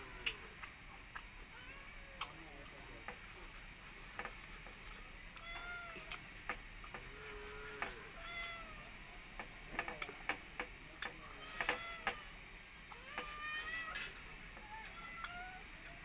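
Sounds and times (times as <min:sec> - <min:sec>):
cat meowing: 0:01.5 - 0:02.4, 0:05.4 - 0:06.2, 0:07.6 - 0:09.0, 0:11.3 - 0:16.0.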